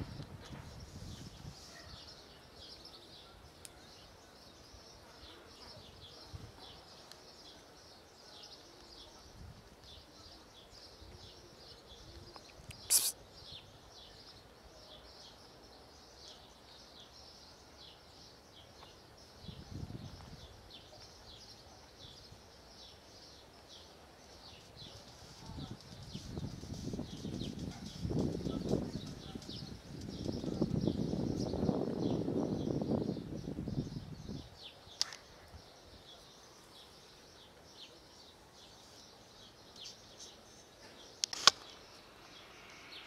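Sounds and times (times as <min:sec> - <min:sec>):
small birds chirping: 0:00.1 - 0:43.0
sharp click: 0:35.0 - 0:35.2, 0:41.2 - 0:41.8.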